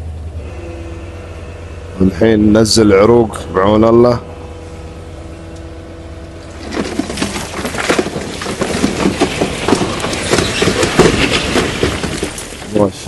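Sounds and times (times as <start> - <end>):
loose rock clattering: 6.4 - 13.0.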